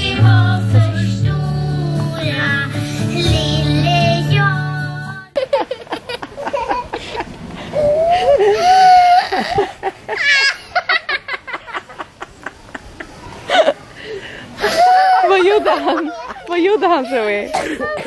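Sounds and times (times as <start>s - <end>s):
girl laughing: 5.4s - 13.9s, 14.6s - 18.0s.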